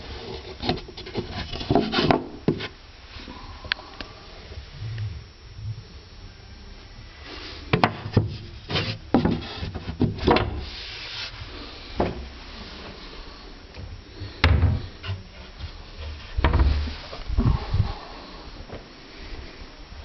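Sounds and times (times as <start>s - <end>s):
taps and knocks on wooden panels: 7.7s - 10.6s.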